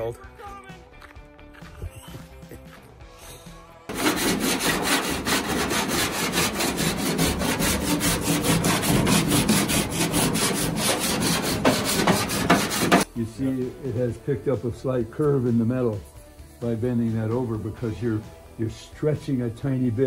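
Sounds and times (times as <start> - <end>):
hammer striking sheet metal: 3.9 - 13.1.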